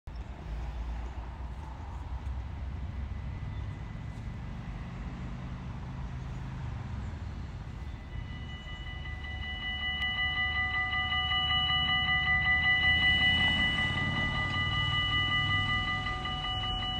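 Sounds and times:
level crossing warning bells: 1.4s - 16.9s.

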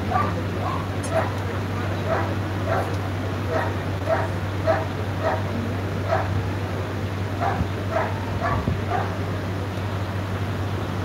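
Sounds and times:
dog barking: 0.1s - 1.4s, 2.0s - 2.9s, 3.5s - 5.5s, 6.1s - 6.4s, 7.4s - 9.2s.

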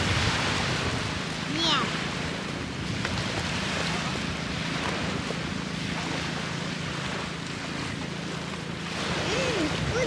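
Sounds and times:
wind on microphone: 0.0s - 6.4s, 9.0s - 10.0s
gentle surf washing on shore: 0.0s - 10.0s.

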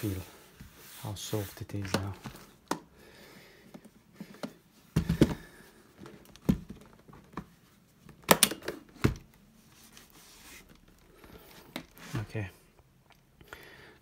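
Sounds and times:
cloth rubbing: 0.0s - 1.8s, 9.6s - 10.9s
briefcase knocks and thumps: 4.9s - 5.6s, 6.2s - 7.5s, 8.2s - 9.3s.

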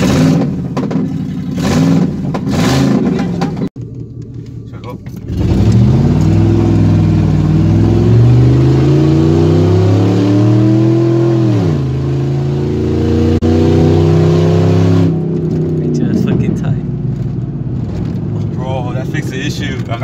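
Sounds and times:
truck engine revving hard: 0.0s - 3.5s, 5.3s - 16.5s.

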